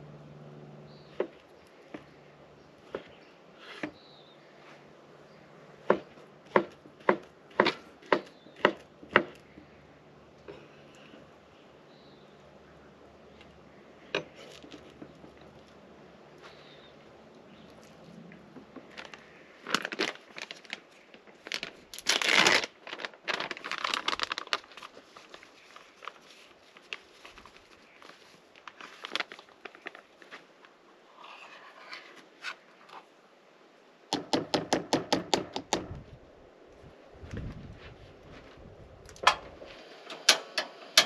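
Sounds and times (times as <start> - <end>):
bag crinkling: 17.7 - 30.5.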